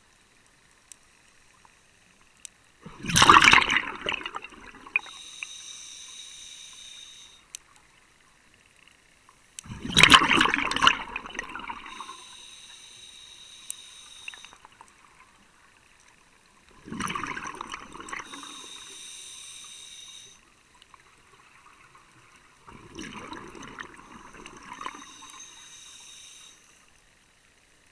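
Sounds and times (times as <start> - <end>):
exhaled bubbles rushing: 2.8 - 5.1, 9.7 - 12.2, 16.7 - 18.9, 22.6 - 25.4
regulator hissing inhale: 5.0 - 7.4, 11.8 - 14.7, 18.2 - 20.4, 24.2 - 26.9.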